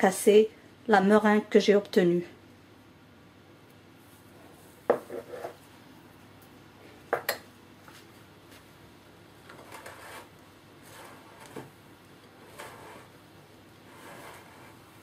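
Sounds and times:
spatula scraping batter: 0:09.6 - 0:13.2, 0:13.8 - 0:15.0.

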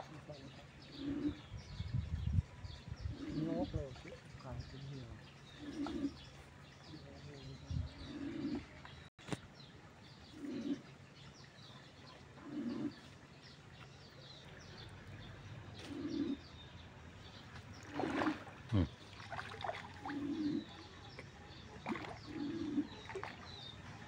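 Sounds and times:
small birds chirping: 0:00.0 - 0:24.0
low cooing: 0:00.9 - 0:01.5, 0:05.6 - 0:06.2, 0:07.8 - 0:08.8, 0:10.3 - 0:10.9, 0:12.4 - 0:13.0, 0:15.8 - 0:16.5, 0:18.7 - 0:19.0, 0:20.0 - 0:20.9, 0:22.2 - 0:23.1.

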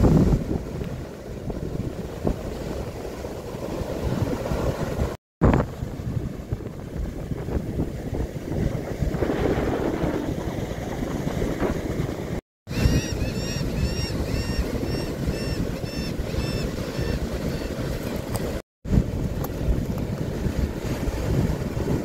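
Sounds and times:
ocean surf breaking: 0:00.0 - 0:12.4
wind rumbling on microphone: 0:00.0 - 0:22.0.

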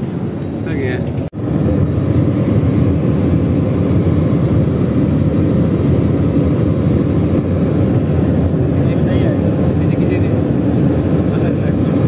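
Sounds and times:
jet airliner cabin engine noise: 0:00.0 - 0:12.0.

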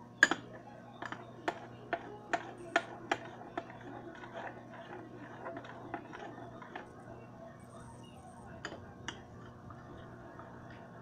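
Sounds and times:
spoon clinking against bowl: 0:00.2 - 0:03.8
slime being stirred: 0:00.2 - 0:11.0.

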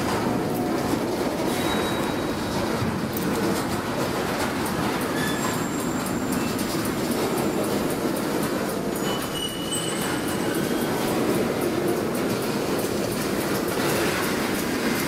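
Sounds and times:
train wheels rumbling on rail: 0:00.0 - 0:15.0
high wheel squeals: 0:01.5 - 0:02.4, 0:05.1 - 0:06.6, 0:09.0 - 0:11.0.

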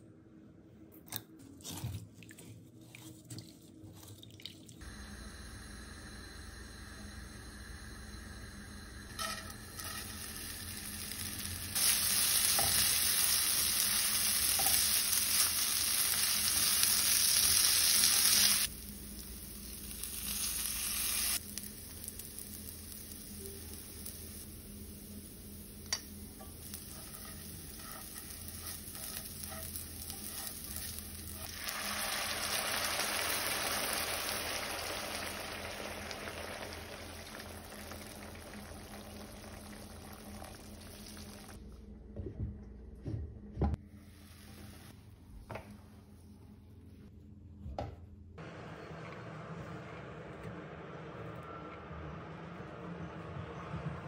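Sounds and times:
butter and oil sizzling in a pan: 0:09.2 - 0:41.6.

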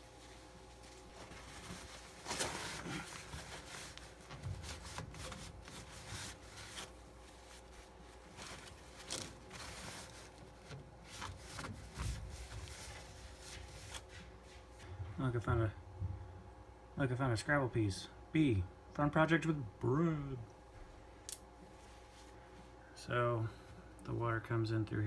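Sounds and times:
towel rubbing on plastic: 0:00.0 - 0:14.8.

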